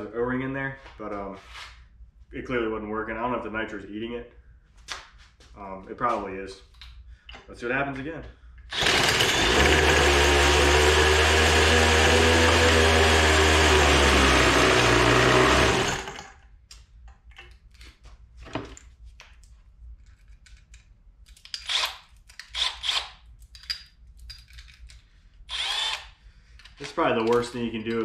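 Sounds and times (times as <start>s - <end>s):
small motor running: 8.7s - 16.3s
tools clicking: 20.0s - 28.0s.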